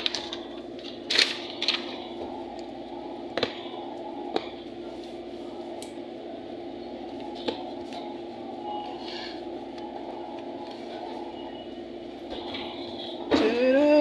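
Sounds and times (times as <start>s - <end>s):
background room hum: 0.0s - 14.0s.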